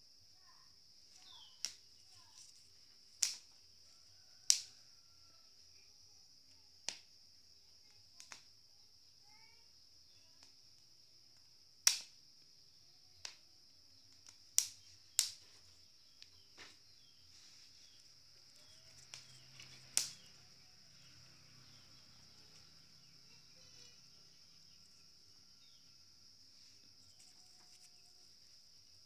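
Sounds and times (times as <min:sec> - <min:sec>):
crickets trilling: 0:00.0 - 0:29.0
maize cobs popping on grill: 0:01.2 - 0:05.0, 0:06.8 - 0:07.2, 0:08.2 - 0:08.6, 0:10.4 - 0:12.4, 0:13.2 - 0:17.1, 0:17.8 - 0:26.1.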